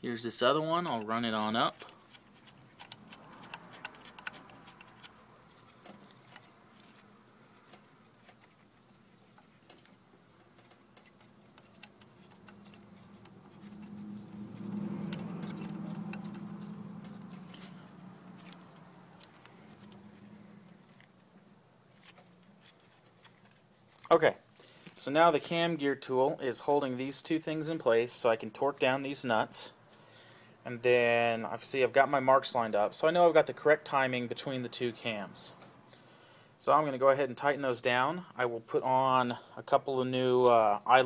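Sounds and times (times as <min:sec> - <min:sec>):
low hum: 0:05.1 - 0:21.7
light metallic clicks: 0:09.3 - 0:20.0.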